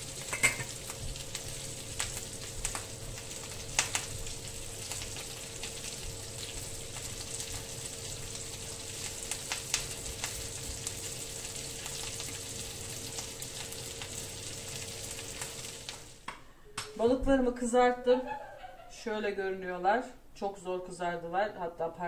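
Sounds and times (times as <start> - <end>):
fish sizzling in hot oil: 0.0 - 16.3
kitchen extractor fan hum: 0.0 - 22.0.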